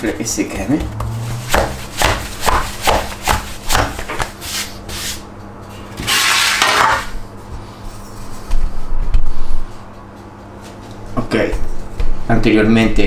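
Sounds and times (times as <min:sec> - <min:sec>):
dough rubbing on surface: 0:00.3 - 0:05.3, 0:07.4 - 0:12.2
hands slapping wet dough: 0:00.4 - 0:04.4.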